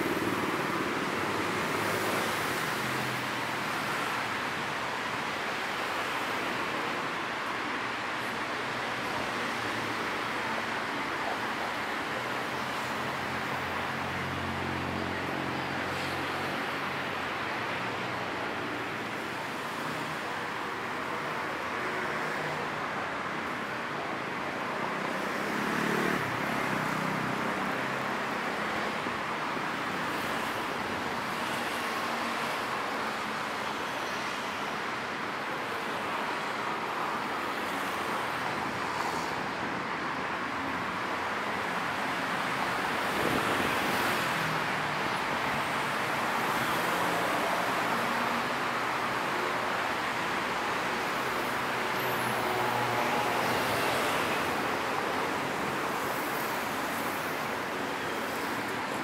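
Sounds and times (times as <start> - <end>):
road traffic rushing: 0.0 - 59.0
vehicles passing close: 22.0 - 32.6.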